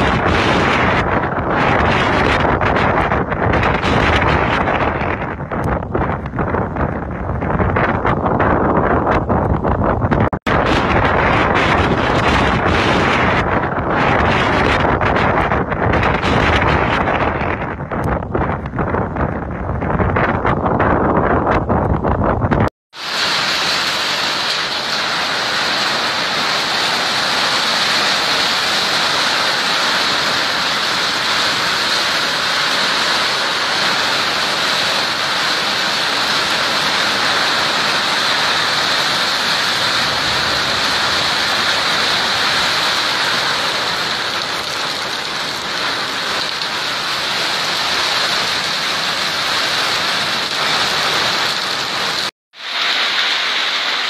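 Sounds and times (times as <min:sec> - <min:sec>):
heavy rain pelting ground and roofs: 0:00.0 - 0:21.5, 0:22.9 - 0:54.0.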